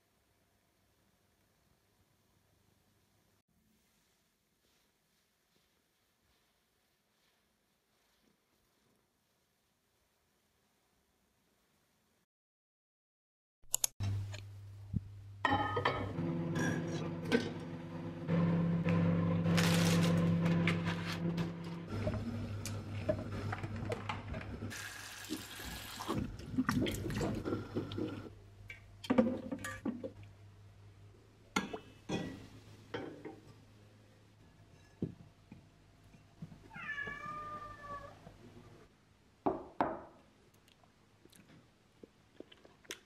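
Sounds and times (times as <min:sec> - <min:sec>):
cat meowing: 0:36.7 - 0:38.2.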